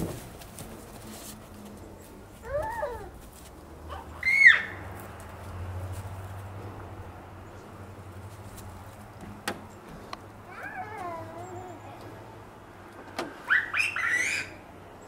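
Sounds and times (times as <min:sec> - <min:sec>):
toddler babbling: 0:02.4 - 0:03.2, 0:10.5 - 0:12.1
toddler squealing: 0:02.4 - 0:03.2, 0:04.2 - 0:04.8, 0:10.5 - 0:11.8, 0:13.4 - 0:14.6.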